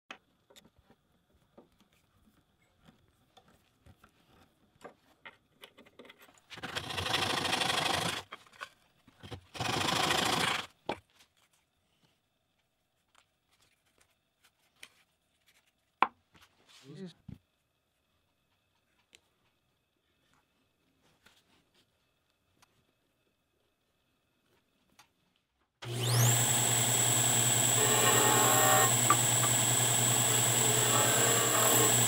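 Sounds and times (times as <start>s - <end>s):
hand saw cutting wood: 25.8s - 32.0s.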